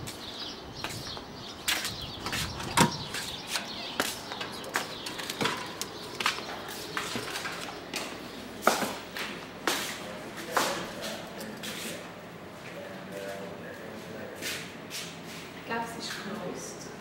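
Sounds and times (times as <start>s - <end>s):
footsteps walking in: 0.0s - 15.6s.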